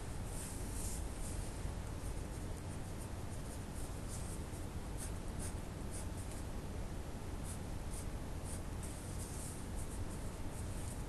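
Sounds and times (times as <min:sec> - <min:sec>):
steady low hum: 0:00.0 - 0:11.0
pen scratching on paper: 0:05.0 - 0:06.4.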